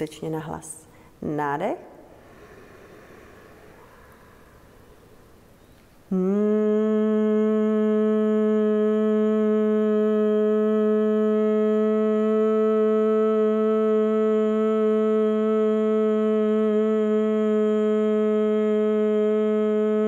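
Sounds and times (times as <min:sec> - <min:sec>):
woman humming: 0:06.1 - 0:20.0.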